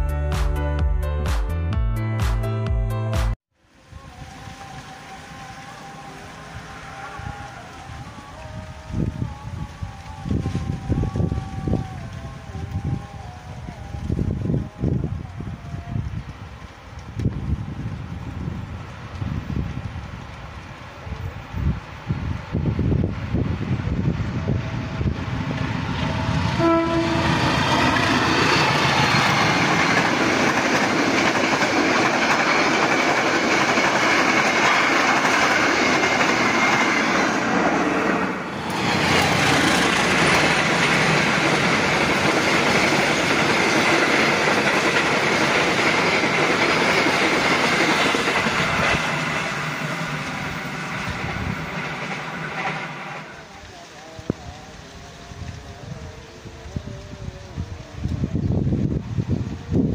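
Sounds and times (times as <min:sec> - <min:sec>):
locomotive horn blast: 0:26.0 - 0:28.8
train wheels clattering on rails: 0:27.3 - 0:53.4.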